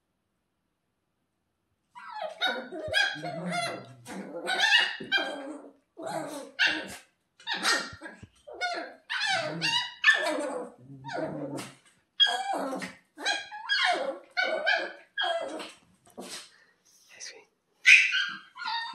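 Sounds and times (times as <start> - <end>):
puppy yelping: 2.0 - 15.7, 17.8 - 18.9.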